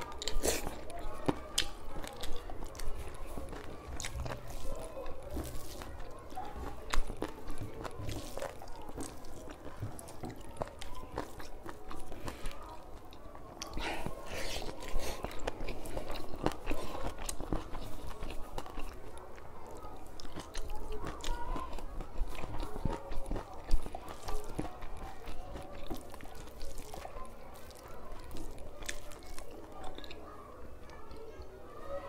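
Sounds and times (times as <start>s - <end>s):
person chewing: 0.0s - 30.3s
fingers working rice on plate: 0.2s - 12.6s.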